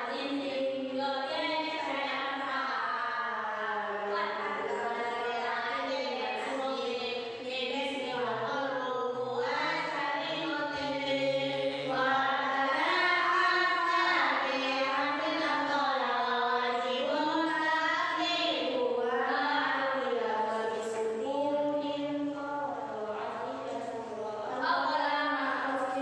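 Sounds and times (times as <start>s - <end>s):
man chanting: 10.8s - 12.1s.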